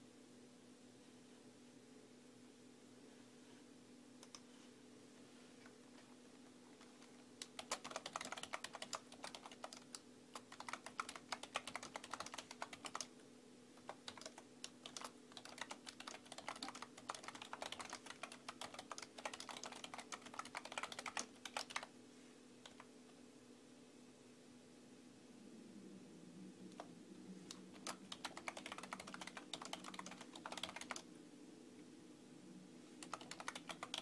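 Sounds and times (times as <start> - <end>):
faint steady hum: 0.0 - 34.0
typing on computer keyboard: 7.4 - 13.1, 13.8 - 21.9, 22.6 - 22.9, 27.5 - 31.1, 33.0 - 34.0.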